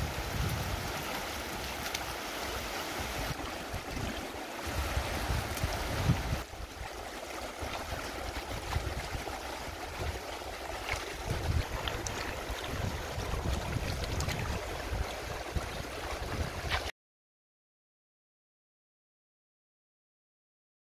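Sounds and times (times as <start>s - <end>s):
wind rumble on microphone: 0.0s - 7.0s, 7.6s - 16.9s
river rushing over stones: 0.0s - 16.7s
small water splashes: 0.0s - 16.9s.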